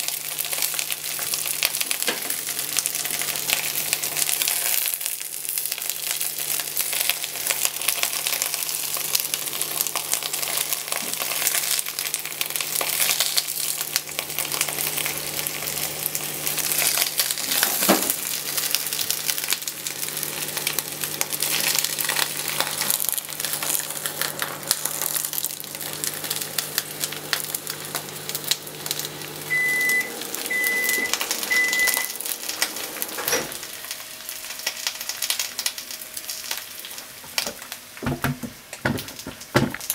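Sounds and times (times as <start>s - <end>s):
food sizzling in a frying pan: 0.0s - 39.9s
short high beeps: 29.5s - 32.2s
knocks in a pan: 37.4s - 39.9s.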